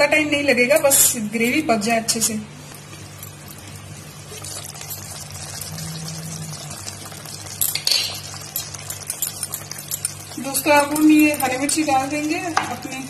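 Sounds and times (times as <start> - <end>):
curry simmering and bubbling: 2.8 - 13.0.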